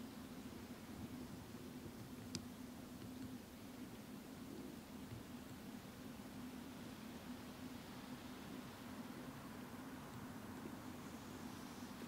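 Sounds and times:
light rain hissing: 0:00.0 - 0:12.0.

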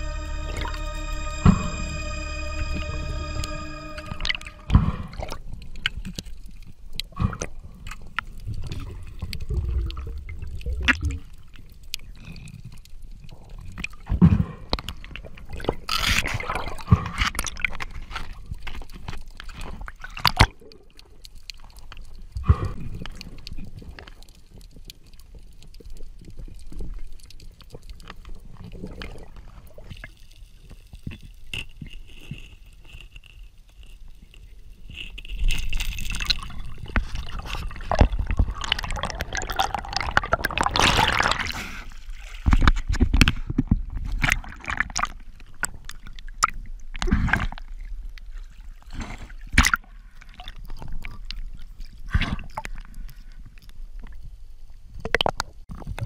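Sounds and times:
muffled underwater water sloshing: 0:34.7 - 0:55.0
water rushing: 0:36.1 - 0:41.8.

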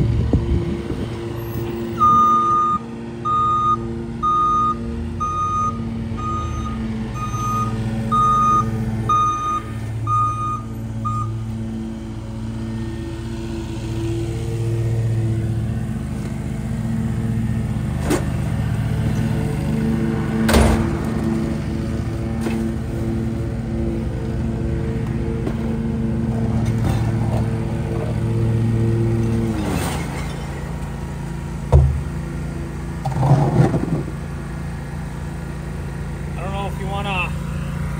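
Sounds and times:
truck engine idling: 0:00.0 - 0:29.5, 0:34.0 - 0:37.9
truck backup alarm beeping: 0:02.0 - 0:11.6.

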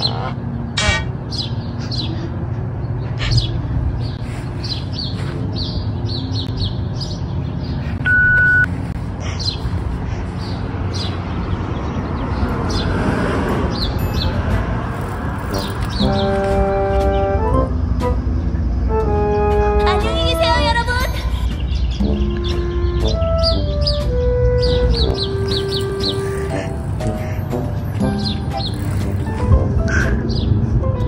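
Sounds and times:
small birds chirping: 0:00.0 - 0:13.0, 0:13.7 - 0:17.6, 0:20.0 - 0:30.7
loud steady beep: 0:08.0 - 0:08.7.

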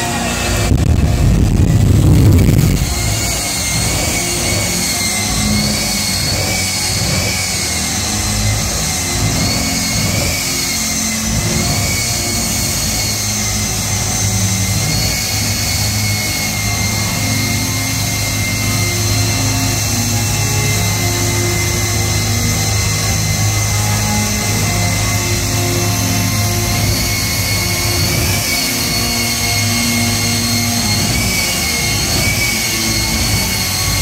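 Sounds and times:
jet turbine whine: 0:00.0 - 0:34.0
steady low rumble: 0:00.2 - 0:07.2.

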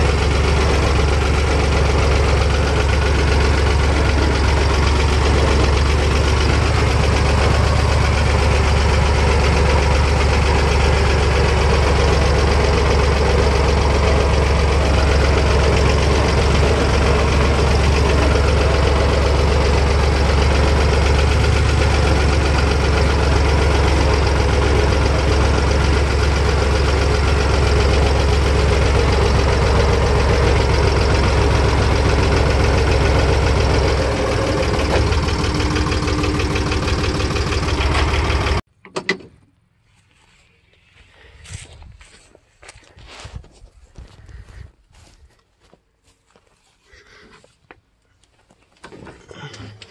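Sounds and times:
tractor engine running: 0:00.0 - 0:46.4.

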